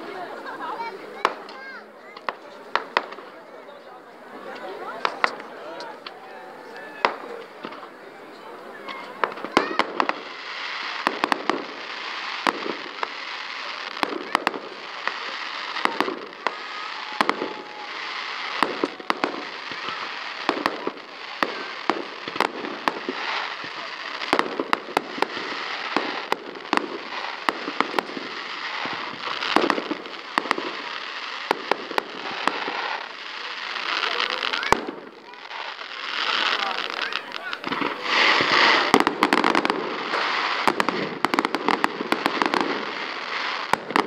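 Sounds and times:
crackling hiss of fireworks: 0:00.0 - 0:44.0
firework shells bursting: 0:08.8 - 0:44.0.

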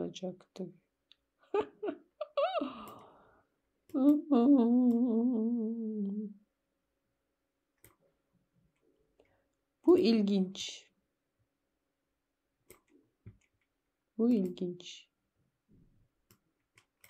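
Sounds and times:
man humming: 0:04.1 - 0:06.4.

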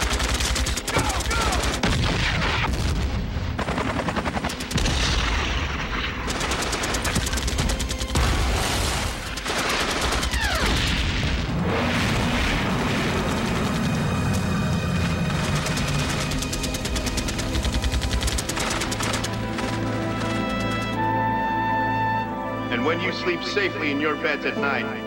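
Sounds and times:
machine-gun fire: 0:00.0 - 0:11.1, 0:15.0 - 0:20.9
explosions: 0:01.0 - 0:03.7, 0:04.7 - 0:06.3, 0:08.1 - 0:14.2.

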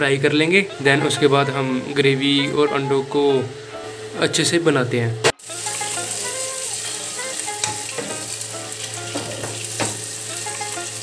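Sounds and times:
eggs sizzling in hot oil: 0:05.4 - 0:11.0.

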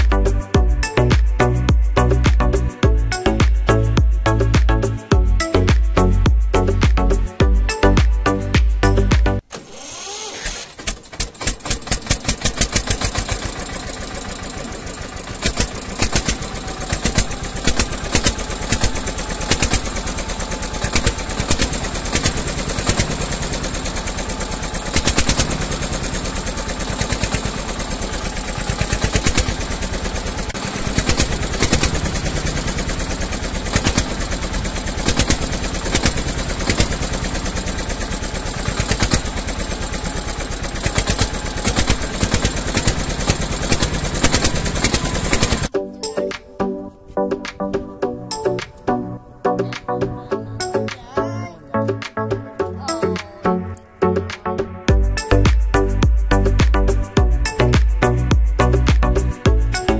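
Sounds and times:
small engine putting: 0:09.4 - 0:45.8.

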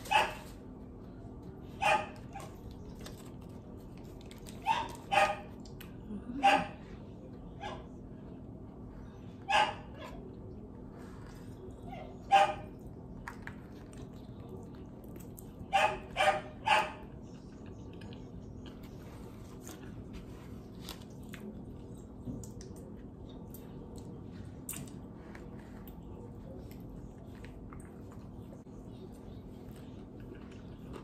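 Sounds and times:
dog barking: 0:00.0 - 0:00.5, 0:01.8 - 0:02.6, 0:04.6 - 0:05.6, 0:06.4 - 0:06.8, 0:07.6 - 0:07.9, 0:09.4 - 0:10.2, 0:11.9 - 0:12.8, 0:15.7 - 0:17.2.

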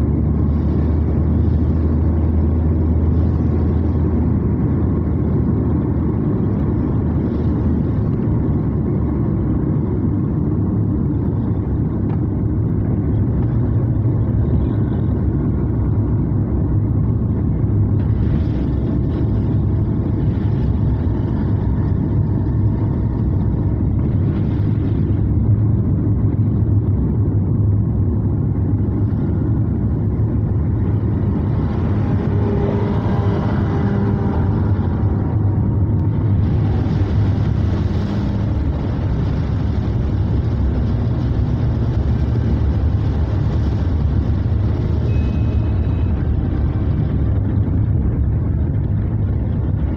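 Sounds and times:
car interior engine rumble: 0:00.0 - 0:49.9
tyres hissing on wet road: 0:36.2 - 0:46.2.

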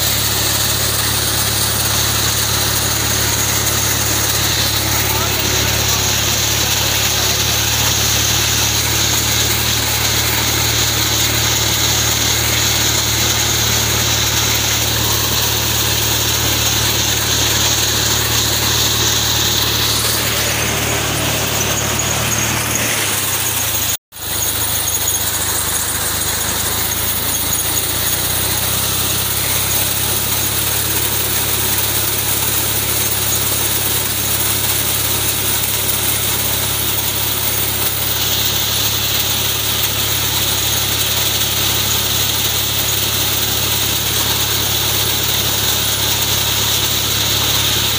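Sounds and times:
high steady whine: 0:00.0 - 0:47.9
tractor diesel engine running: 0:00.0 - 0:47.9.

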